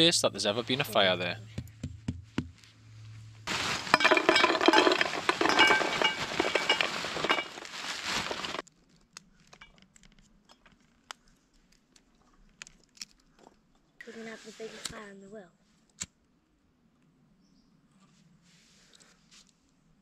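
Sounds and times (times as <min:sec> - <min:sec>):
coals clattering into metal bowl: 0:03.5 - 0:08.6.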